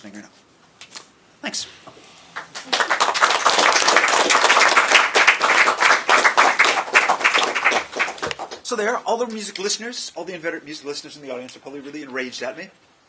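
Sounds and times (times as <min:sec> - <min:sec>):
small group applauding: 0:02.3 - 0:08.7.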